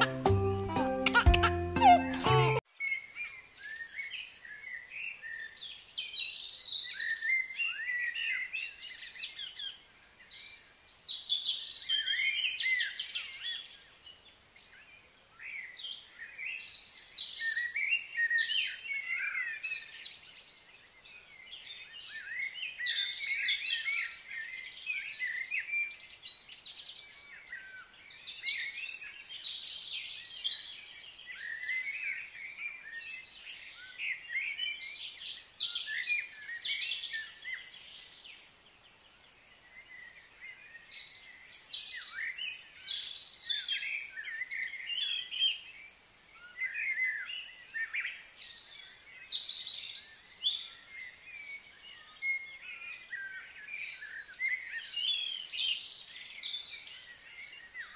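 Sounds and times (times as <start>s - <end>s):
birds chirping and trilling: 0.0s - 57.9s.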